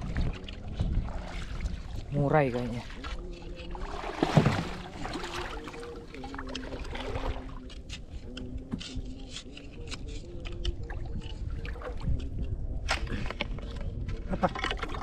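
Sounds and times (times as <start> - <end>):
underwater water rush: 0.0 - 2.1, 2.8 - 7.7
sharp underwater clicks: 7.6 - 13.1.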